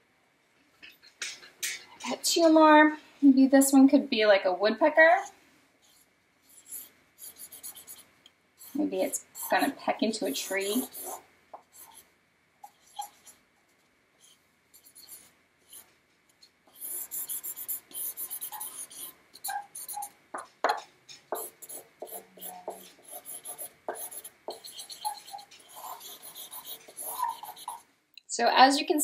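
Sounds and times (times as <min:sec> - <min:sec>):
drawing strokes scratching paper: 0:05.8 - 0:13.4, 0:14.2 - 0:15.9, 0:16.7 - 0:27.9.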